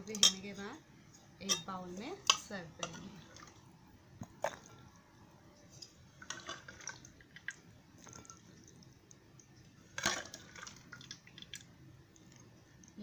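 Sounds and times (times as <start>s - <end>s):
ladle scraping and tapping bowl: 1.4s - 3.1s.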